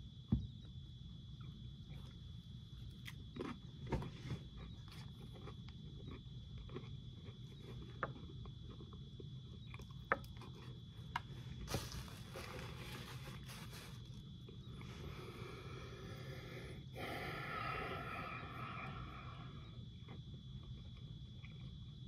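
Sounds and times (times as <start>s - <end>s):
steady low hum: 0.0s - 22.0s
person chewing crunchy food: 2.8s - 15.2s, 19.9s - 22.0s
faint high whine: 7.0s - 22.0s
breathy rush of air: 15.6s - 19.6s.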